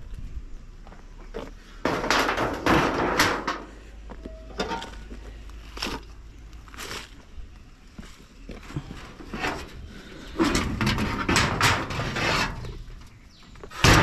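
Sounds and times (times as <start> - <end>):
tin sheets scraping and clattering: 1.8 - 3.8, 8.8 - 13.0, 13.7 - 14.0.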